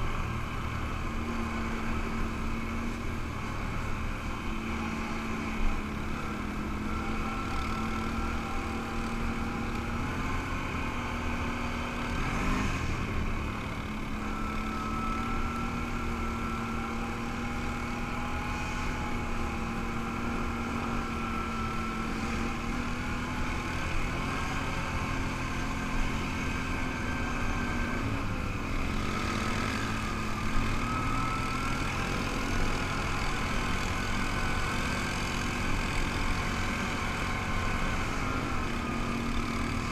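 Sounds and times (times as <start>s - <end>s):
atv engine running: 0.0s - 39.9s
wind and rolling noise: 0.0s - 39.9s.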